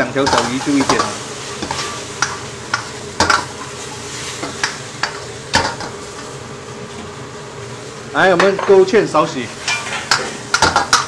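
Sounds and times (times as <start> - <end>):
frying sizzle: 0.0 - 11.0
metal ladle scraping wok: 0.2 - 2.1, 9.6 - 11.0.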